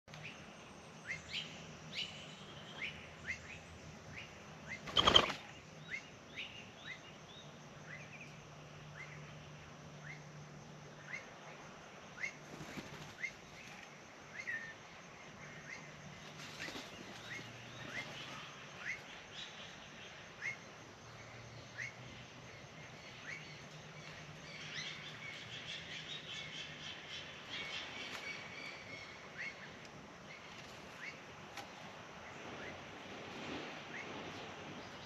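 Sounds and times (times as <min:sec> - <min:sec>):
small birds chirping: 0:00.1 - 0:11.4
wings fluttering: 0:04.8 - 0:05.6, 0:12.4 - 0:13.9, 0:16.2 - 0:18.4.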